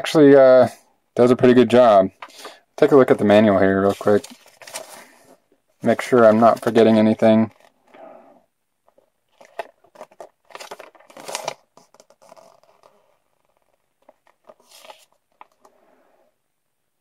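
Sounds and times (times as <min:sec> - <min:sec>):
paper leaflet rustling and crackling: 0:02.2 - 0:07.7, 0:08.9 - 0:15.8.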